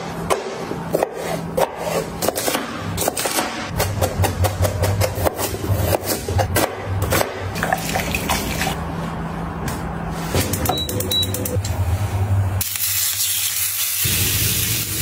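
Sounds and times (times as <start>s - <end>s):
knife chopping on cutting board: 0.3s - 7.4s.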